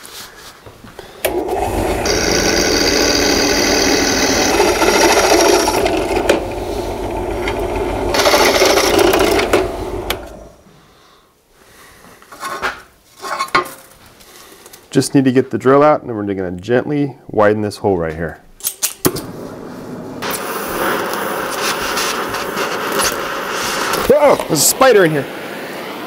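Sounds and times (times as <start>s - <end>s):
drill press motor hum: 1.2s - 10.6s
high cutting squeal: 2.0s - 10.4s.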